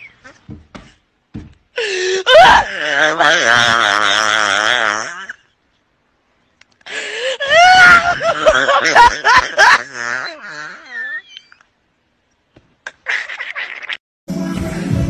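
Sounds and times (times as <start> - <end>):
person wailing: 1.8 - 4.6
high vocal cries: 1.8 - 5.5, 7.2 - 11.7.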